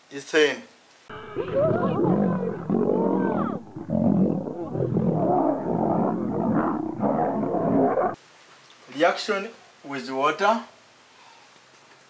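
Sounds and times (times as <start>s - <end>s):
lions roaring: 1.2s - 8.2s.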